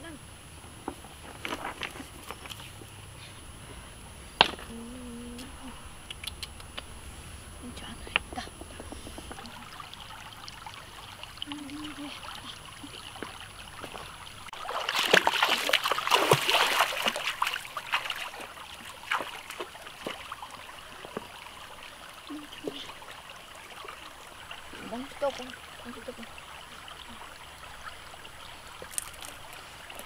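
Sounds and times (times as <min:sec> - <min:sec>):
trickle of running water: 0:07.7 - 0:30.0
bare feet splashing in stream: 0:08.4 - 0:30.0.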